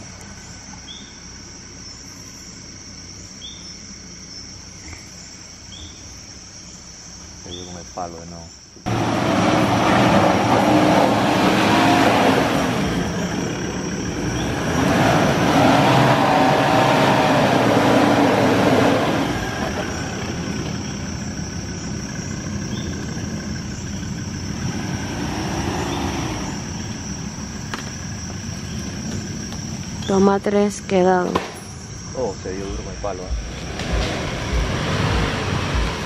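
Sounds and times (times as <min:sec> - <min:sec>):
off-road engine revving: 0:08.8 - 0:31.2, 0:32.0 - 0:36.0.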